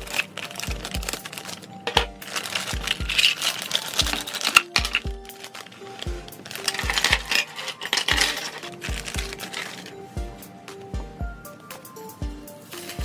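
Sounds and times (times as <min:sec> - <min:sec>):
background music with bass beat: 0:00.0 - 0:01.3, 0:01.9 - 0:05.4, 0:06.0 - 0:07.4, 0:08.1 - 0:13.0
scissors cutting plastic: 0:00.0 - 0:10.0
plastic bag crinkling: 0:00.0 - 0:10.1.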